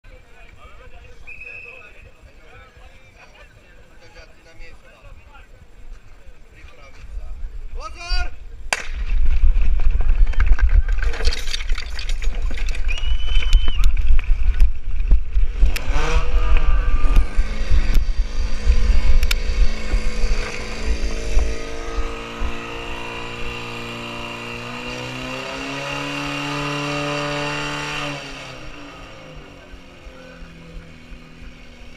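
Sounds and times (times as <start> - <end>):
wind rumble on microphone: 6.9 - 24.6.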